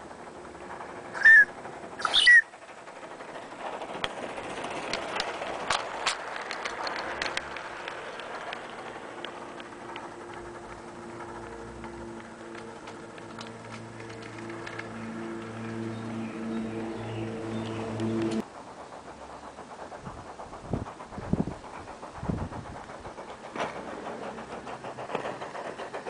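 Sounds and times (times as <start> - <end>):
soft steam exhaust hiss: 0.0 - 26.0
wheels clicking on rails: 0.0 - 26.0
steam whistle toots: 1.2 - 2.5.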